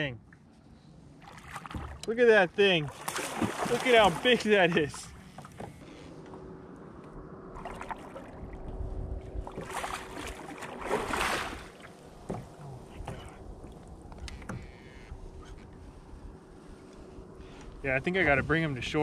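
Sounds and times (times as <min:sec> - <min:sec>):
water splashing and churning: 0:01.1 - 0:06.0, 0:07.4 - 0:14.8.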